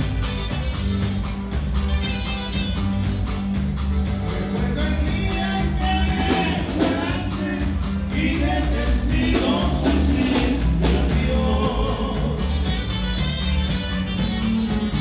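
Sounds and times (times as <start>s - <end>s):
bass guitar: 0.0s - 15.0s
drums: 0.0s - 15.0s
electric guitars: 0.0s - 15.0s.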